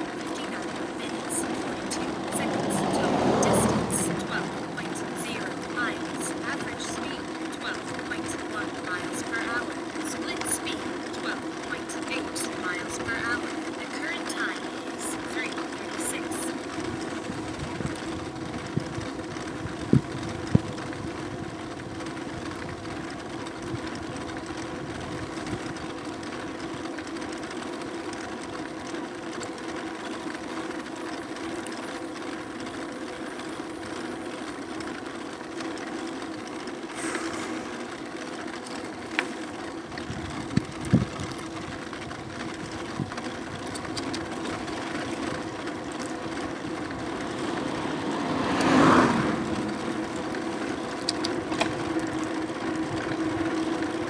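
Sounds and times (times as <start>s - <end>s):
electric motor humming: 0.0s - 54.0s
tyre and wind noise: 17.4s - 21.6s, 40.0s - 44.3s.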